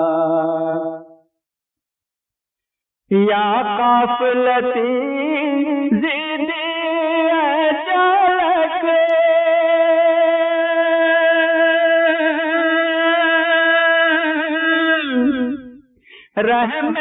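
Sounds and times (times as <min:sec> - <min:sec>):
man singing long high note: 0:00.0 - 0:01.1.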